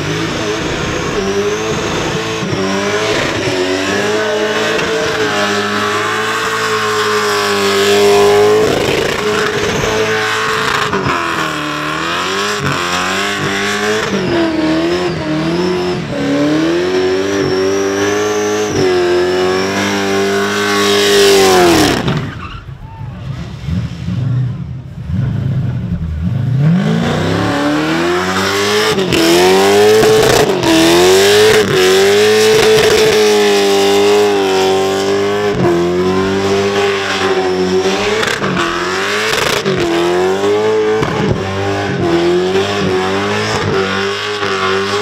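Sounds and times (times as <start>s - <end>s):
car engine at high revs: 0.0s - 22.6s, 23.3s - 45.0s
spinning tyres: 0.0s - 22.7s.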